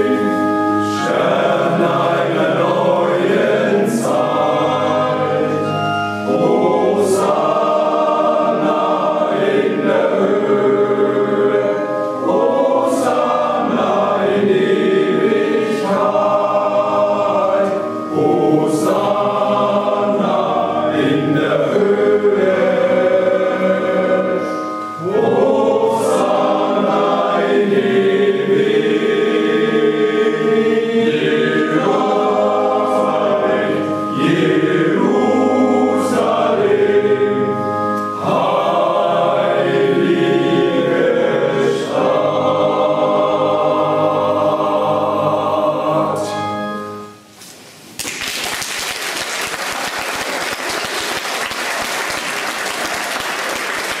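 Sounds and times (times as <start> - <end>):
men's choir singing unaccompanied: 0.0 - 46.7
audience applauding: 48.0 - 54.0.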